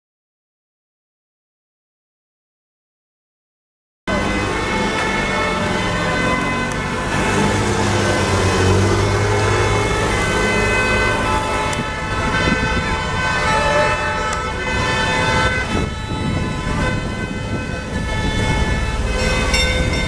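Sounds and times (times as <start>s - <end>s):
emergency vehicle sirens: 4.1s - 20.0s
vehicle horns: 4.1s - 20.0s.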